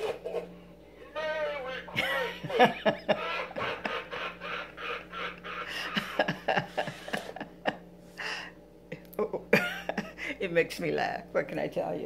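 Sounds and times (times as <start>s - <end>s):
woman laughing: 1.6s - 10.4s.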